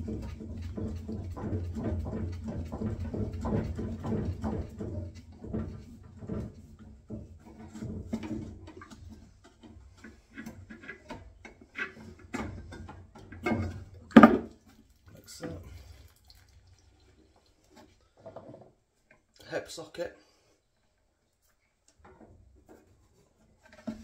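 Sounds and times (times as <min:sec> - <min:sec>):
pipe cutter clicking and scraping: 0:00.0 - 0:14.2.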